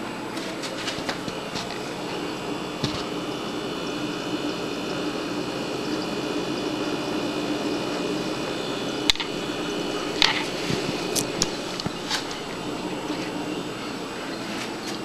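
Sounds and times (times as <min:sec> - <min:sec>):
steady room hum: 0:00.0 - 0:15.0
click beetle snapping: 0:09.1 - 0:09.3.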